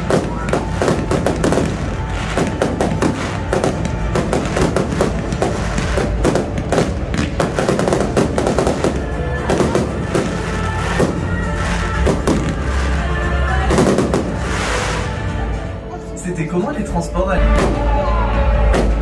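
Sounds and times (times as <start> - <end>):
music playing: 0.0 - 19.0
fireworks shells bursting: 13.7 - 15.2.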